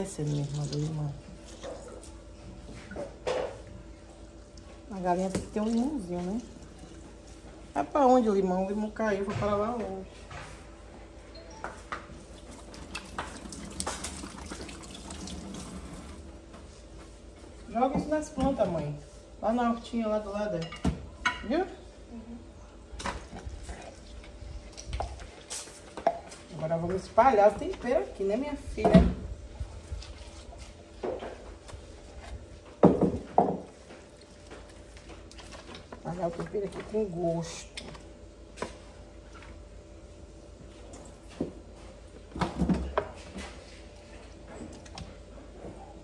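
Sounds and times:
tap water running into sink: 12.8 - 16.2.

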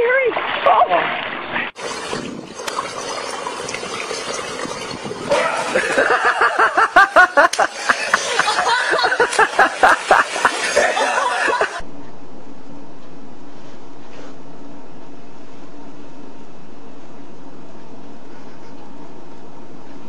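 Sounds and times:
person laughing hard: 5.3 - 11.8.

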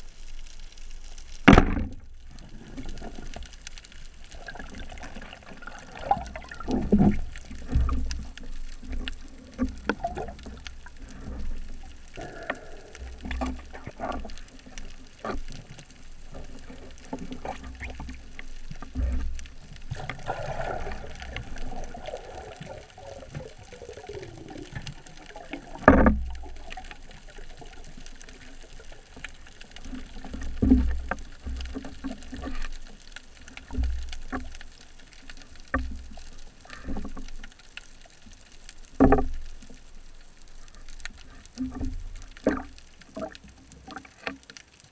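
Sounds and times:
water rushing underwater: 1.5 - 37.0.

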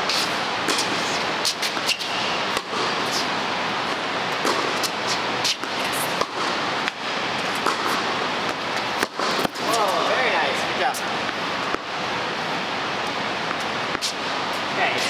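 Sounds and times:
steady rush of noise: 0.0 - 15.0
racket hitting ball: 0.1 - 10.2, 13.4 - 14.4.

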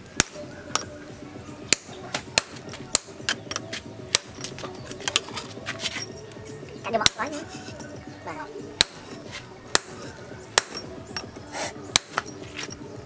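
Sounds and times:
hammer striking chisel on metal: 0.2 - 0.9, 1.7 - 5.3, 7.0 - 8.0, 8.8 - 12.8.

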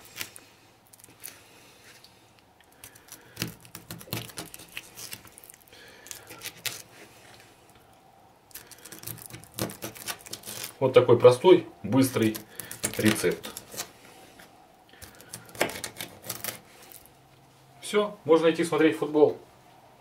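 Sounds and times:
knife slicing fish: 2.8 - 5.4, 8.6 - 10.8, 15.0 - 16.6.

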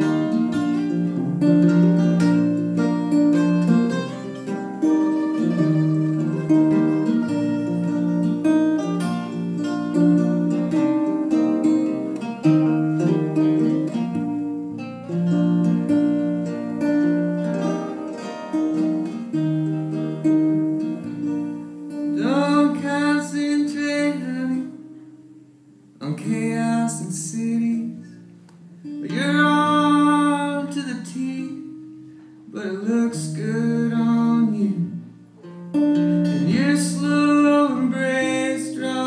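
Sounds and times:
acoustic guitars strummed: 0.0 - 39.0
person singing: 22.1 - 25.0, 26.0 - 28.2, 29.0 - 31.9, 32.5 - 35.2, 36.2 - 39.0.

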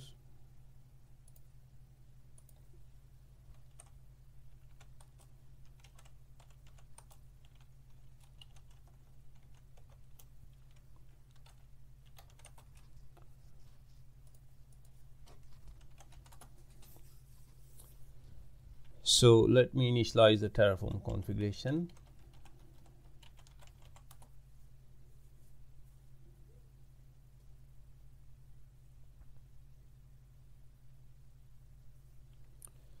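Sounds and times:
steady low hum: 0.0 - 33.0
keyboard typing: 3.5 - 13.3, 14.2 - 16.8, 21.8 - 24.3.

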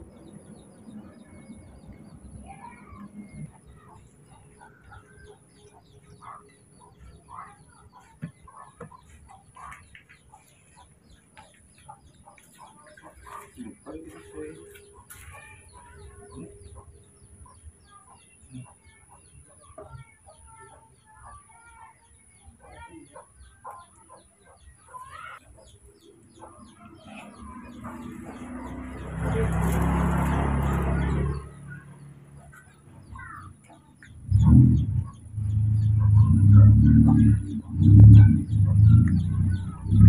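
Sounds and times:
chirping clucking animal calls: 0.0 - 40.0
loud low sounds: 34.2 - 40.0
rushing rumbling noise: 34.2 - 40.0.

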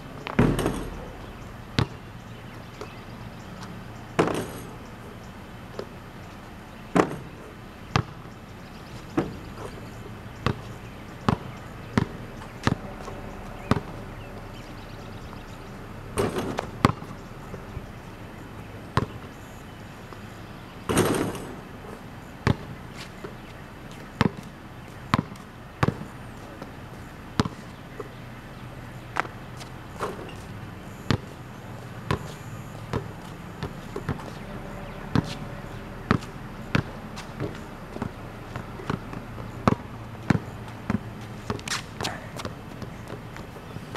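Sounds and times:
basketball bouncing on concrete: 0.2 - 2.1, 7.0 - 8.3, 9.1 - 14.3, 16.2 - 17.2, 18.9 - 19.3, 22.4 - 23.4, 24.2 - 24.5, 25.1 - 26.2, 27.4 - 27.6, 31.1 - 31.4, 32.0 - 43.6
rough scraping noises: 11.7 - 18.0, 32.3 - 39.6.

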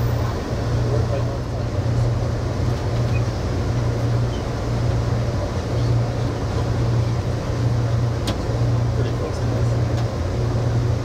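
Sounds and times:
moving train rumble: 0.0 - 11.0.

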